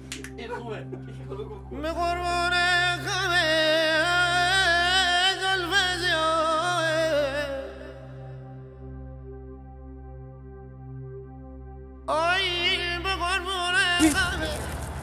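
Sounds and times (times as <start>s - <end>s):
backing music: 0.0s - 5.8s, 9.2s - 15.0s
man singing held vocal line: 12.1s - 14.7s.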